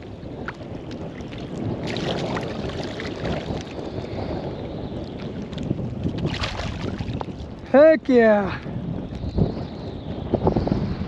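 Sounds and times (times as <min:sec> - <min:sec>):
wind buffeting microphone: 0:00.0 - 0:11.0
water sloshing: 0:00.4 - 0:03.8, 0:05.4 - 0:07.4.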